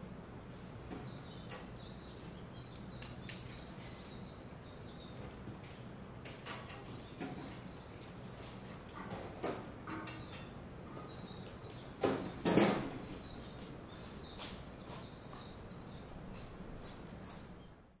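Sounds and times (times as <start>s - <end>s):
outdoor background hum: 0.0s - 18.0s
small birds chirping: 0.0s - 18.0s.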